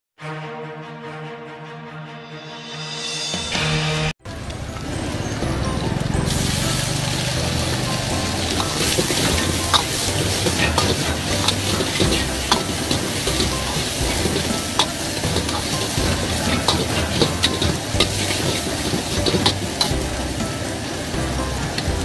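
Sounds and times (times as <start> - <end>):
shrimp sizzling in a wok: 4.3 - 22.0
metal ladle scraping wok: 5.4 - 22.0.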